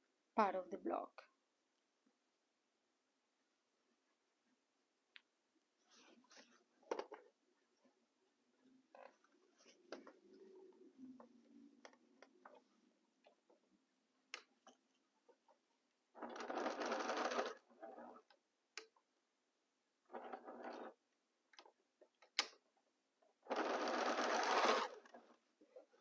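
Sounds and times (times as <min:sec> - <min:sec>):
sewing machine stitching: 0:16.2 - 0:18.4, 0:20.1 - 0:21.0, 0:23.4 - 0:25.3.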